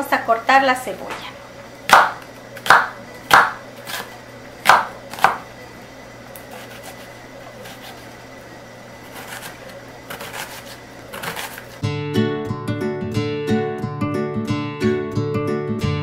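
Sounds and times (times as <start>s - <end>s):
knife chopping on wooden board: 1.9s - 5.4s, 9.1s - 11.8s.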